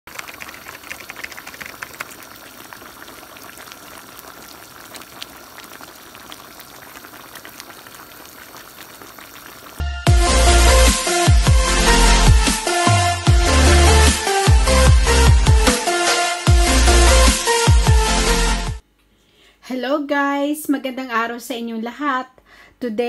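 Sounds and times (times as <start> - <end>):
stew bubbling and popping: 0.0 - 9.8
electronic intro music: 9.8 - 18.8.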